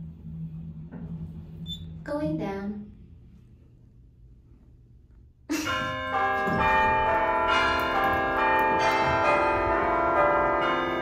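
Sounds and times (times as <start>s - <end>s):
bell-like background music: 5.5s - 11.0s.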